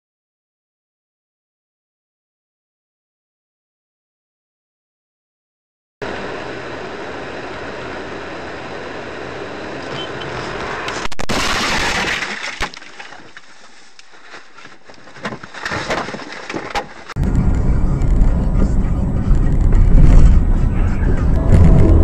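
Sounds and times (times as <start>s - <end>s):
car cabin road noise: 6.0s - 11.3s, 12.2s - 22.0s
car crash: 9.9s - 13.5s, 14.7s - 22.0s
rushing scraping noise: 9.9s - 22.0s
knocks and rattles: 14.8s - 17.2s.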